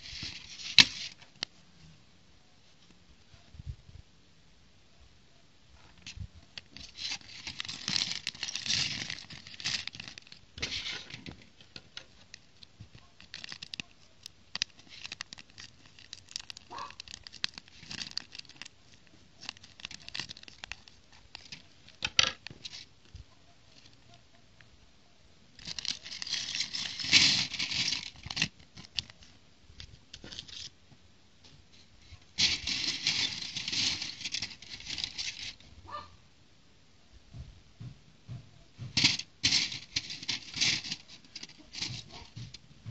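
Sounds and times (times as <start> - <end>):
plastic bag crinkling and tearing: 0.0 - 1.3, 6.5 - 22.9, 25.6 - 29.3, 32.0 - 35.7, 39.0 - 42.6.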